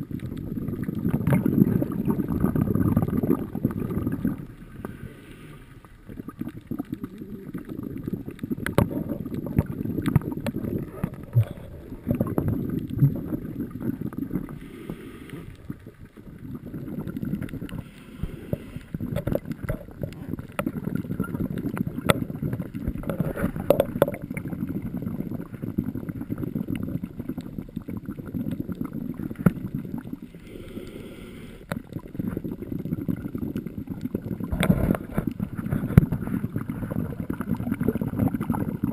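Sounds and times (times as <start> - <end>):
exhaled bubbles crackling: 0.0 - 38.9
hissing regulator inhalations: 14.5 - 15.6, 17.8 - 19.0, 30.4 - 31.7.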